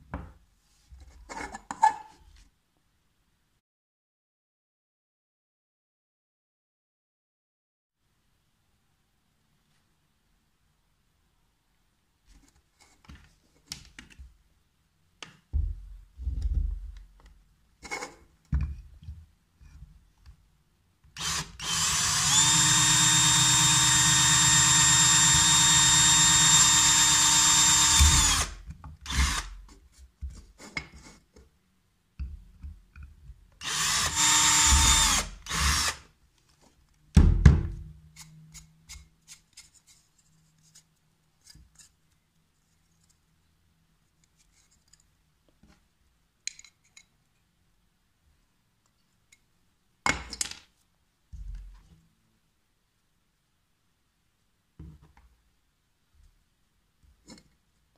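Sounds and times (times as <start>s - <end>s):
cordless drill whining: 21.2s - 29.6s, 33.6s - 36.0s
drill boring through plastic: 21.2s - 29.6s, 33.6s - 36.0s.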